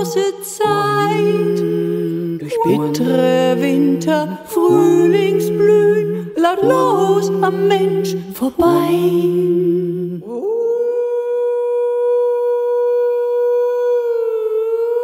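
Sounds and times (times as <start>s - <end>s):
person singing slow melody: 0.0s - 15.0s
low drone note: 6.6s - 8.3s.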